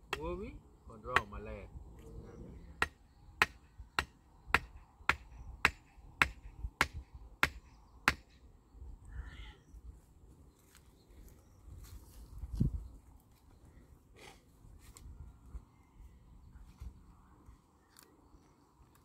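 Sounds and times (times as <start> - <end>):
stake being hammered into ground: 0.0 - 0.4, 1.1 - 1.4, 2.8 - 8.4.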